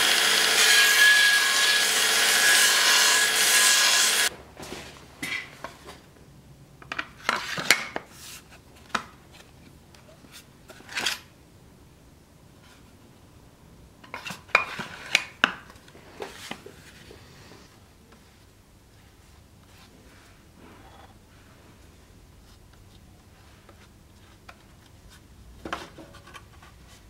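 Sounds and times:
belt grinder sanding wood: 0.0 - 4.3.

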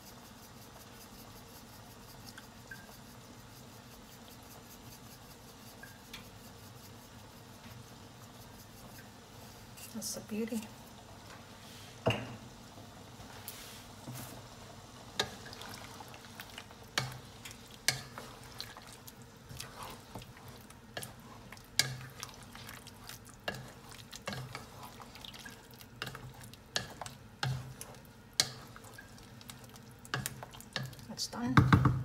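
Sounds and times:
wet stirring of sauce: 0.0 - 10.0, 15.1 - 31.2
wooden spatula knocking on pot: 30.2 - 32.0.

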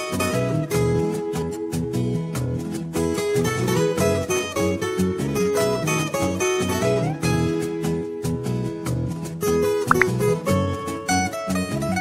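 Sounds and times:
plucked string melody: 9.9 - 10.5.

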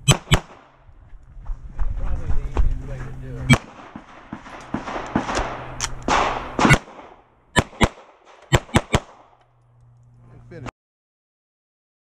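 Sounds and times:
pistol shots: 0.1 - 0.8, 3.5 - 9.4.

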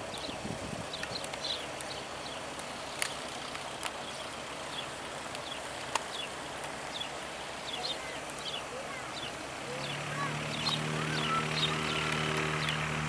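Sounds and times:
distant light aircraft engine drone: 0.0 - 13.0
outdoor noise: 0.0 - 13.0
small bird chirping: 6.9 - 13.0.

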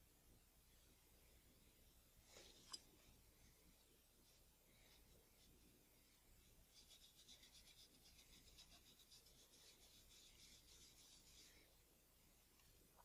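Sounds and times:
cotton swab rubbing: 3.9 - 11.9.

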